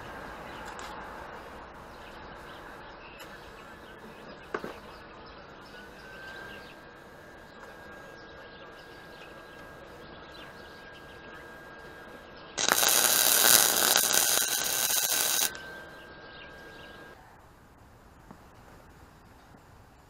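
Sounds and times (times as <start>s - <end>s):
welder arc buzzing: 12.6s - 15.6s.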